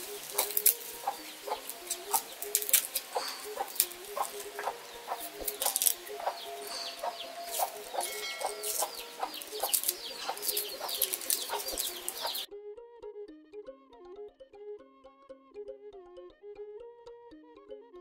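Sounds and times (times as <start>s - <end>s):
chickens clucking: 0.0s - 12.5s
background music: 0.0s - 18.0s.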